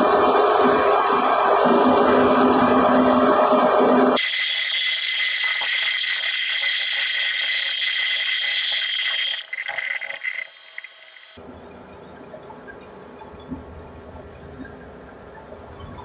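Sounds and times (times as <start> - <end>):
metal lathe cutting whine: 0.0 - 11.4.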